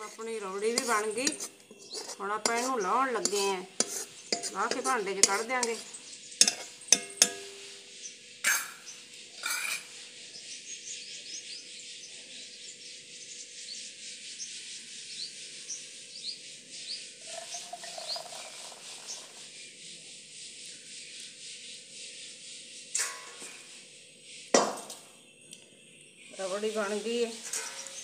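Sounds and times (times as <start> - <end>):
birds chirping: 0.0 - 28.0
metal pot knocks: 4.4 - 5.7, 6.4 - 7.6
food pouring into bowl: 17.2 - 19.4.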